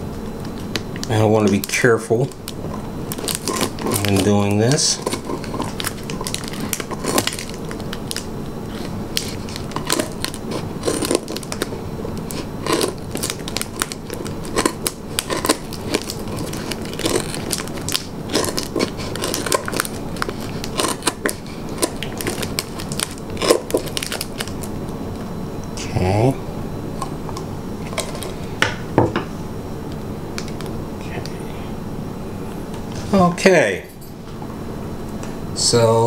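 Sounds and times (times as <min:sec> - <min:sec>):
plastic crackling: 0:00.4 - 0:25.0.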